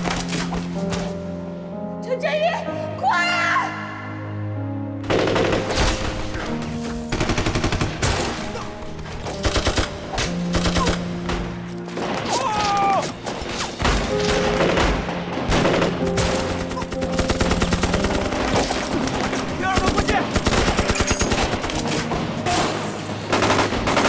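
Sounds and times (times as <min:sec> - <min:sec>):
dramatic orchestral score: 0:00.0 - 0:24.0
machine-gun fire bursts: 0:07.1 - 0:08.1, 0:19.8 - 0:21.7.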